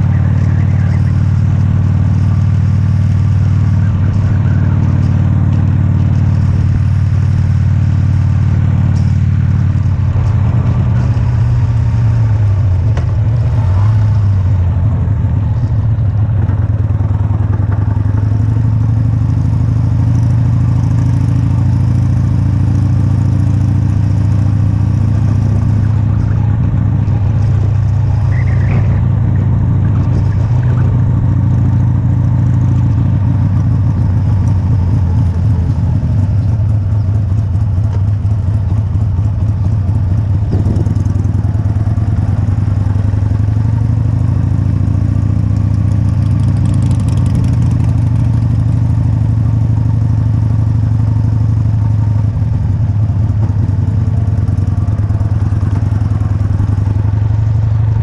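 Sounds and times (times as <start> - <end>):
motorcycle engine running: 0.0 - 58.0
road noise: 0.0 - 58.0
wind noise: 40.4 - 41.2.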